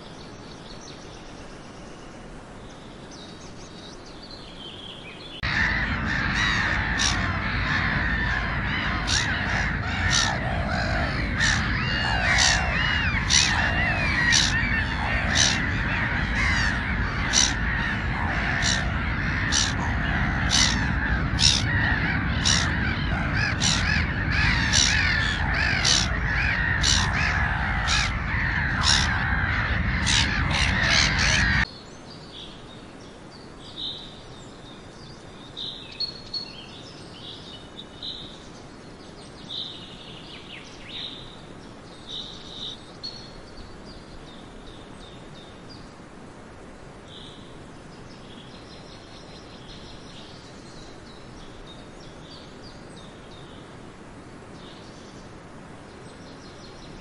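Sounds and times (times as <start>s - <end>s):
gulls calling: 5.4s - 31.7s.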